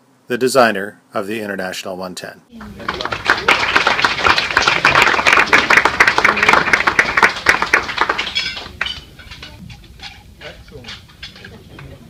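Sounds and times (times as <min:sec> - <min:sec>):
crowd applauding: 0:02.6 - 0:09.6.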